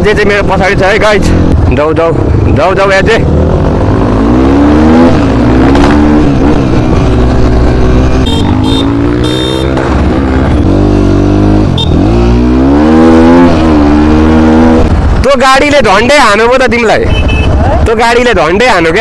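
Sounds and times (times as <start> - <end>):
dirt bike engine revving: 0.5 - 15.2.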